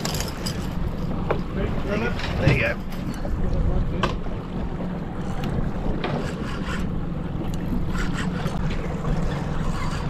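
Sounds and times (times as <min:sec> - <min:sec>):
outboard motor running: 0:00.0 - 0:10.0
water rushing past hull: 0:00.0 - 0:10.0
wind buffeting microphone: 0:00.0 - 0:10.0.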